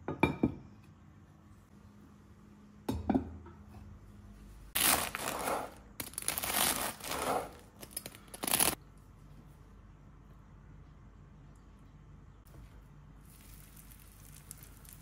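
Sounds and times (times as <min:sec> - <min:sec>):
bread knife sawing crusty bread: 0:04.8 - 0:05.8, 0:06.4 - 0:07.6.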